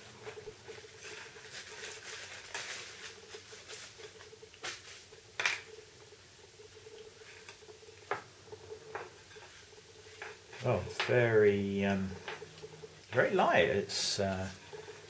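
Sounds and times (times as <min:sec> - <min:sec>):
packaging rustling: 0:01.0 - 0:05.0.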